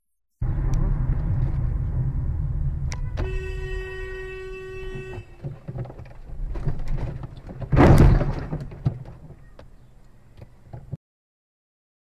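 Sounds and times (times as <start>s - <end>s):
engine and road rumble: 0.4s - 11.0s
car horn: 2.9s - 5.7s
vehicle collision crunch: 4.8s - 11.0s.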